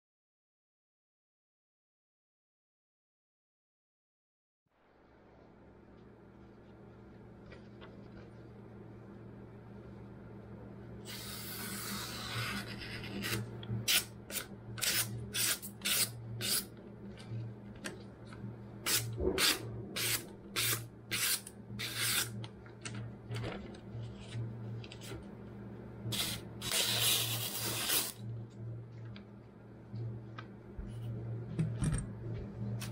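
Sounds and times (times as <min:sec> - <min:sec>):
knife slicing paper: 0:18.9 - 0:22.4, 0:26.1 - 0:28.2.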